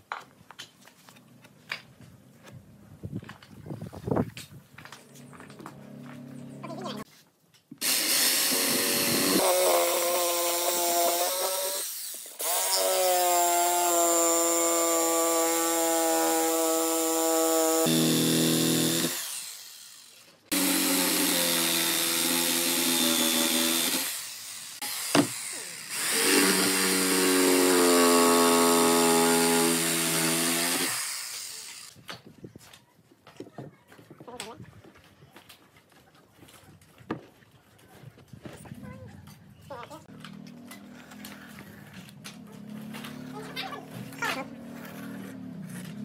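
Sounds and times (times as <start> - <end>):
electric jigsaw cutting wood: 7.8 - 32.0.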